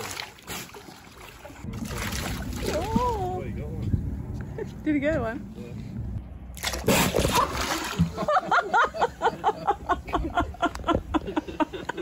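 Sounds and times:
seal splashing in water: 0:06.6 - 0:08.2.

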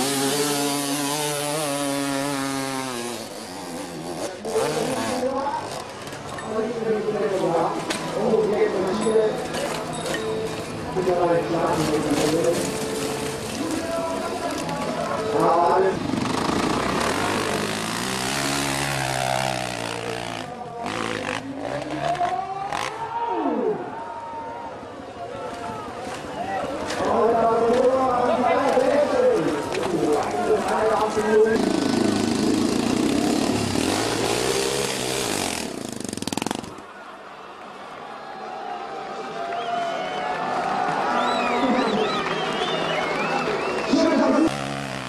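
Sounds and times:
dirt bike engine revving: 0:00.0 - 0:06.0, 0:14.8 - 0:23.0, 0:30.7 - 0:36.8, 0:44.1 - 0:45.0.

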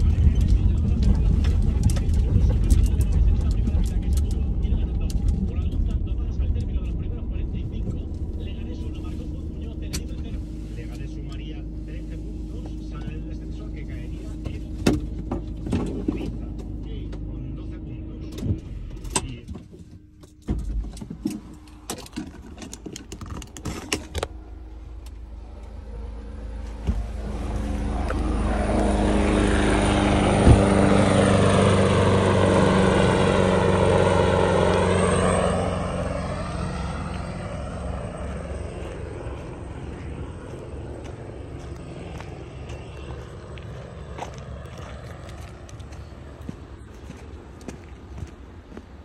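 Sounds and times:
sharp clicks and knocks: 0:18.3 - 0:24.4
vehicle passing by: 0:24.5 - 0:49.0.

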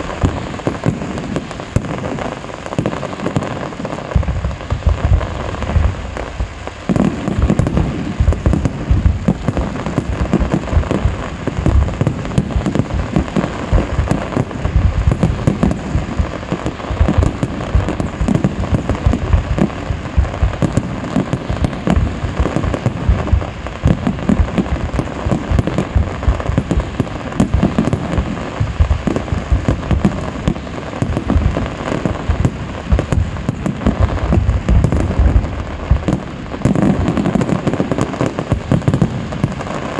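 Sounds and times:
fireworks bursts and bangs: 0:00.0 - 0:39.9.

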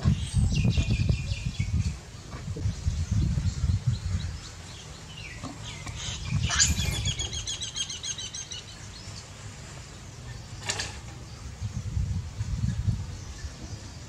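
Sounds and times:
bird trilling high chirps: 0:05.1 - 0:08.8.

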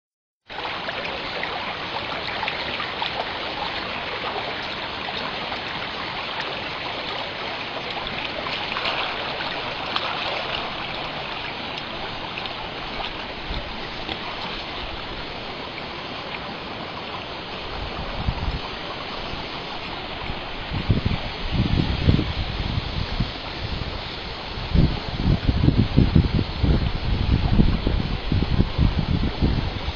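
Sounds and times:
steady rushing noise: 0:00.6 - 0:29.9.

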